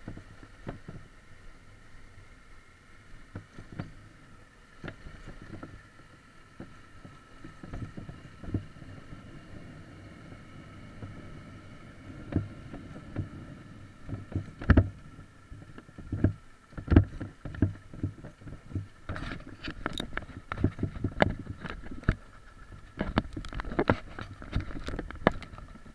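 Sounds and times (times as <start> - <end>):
dirt bike engine hum: 0.0 - 25.9
wheels knocking over stones: 12.1 - 25.9.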